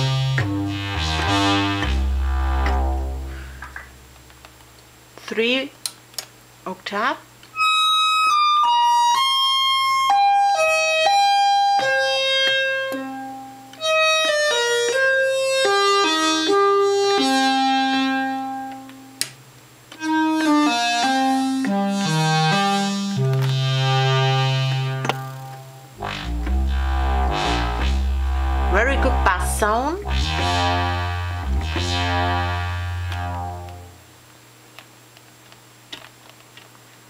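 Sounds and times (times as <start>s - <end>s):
synthesizer playing falling notes: 0.0s - 4.2s, 23.5s - 34.0s.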